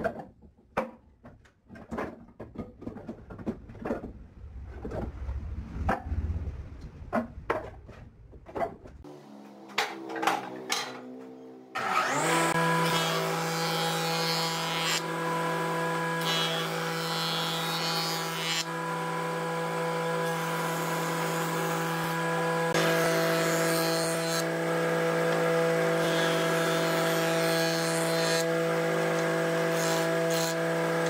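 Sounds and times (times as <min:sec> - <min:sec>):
wooden boards clattering: 0:00.0 - 0:04.2.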